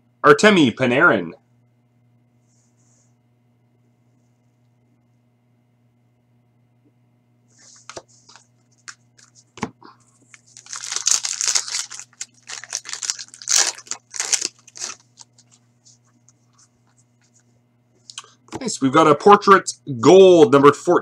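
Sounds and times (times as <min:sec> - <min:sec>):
foil wrapper tearing and crinkling: 0:10.3 - 0:15.6.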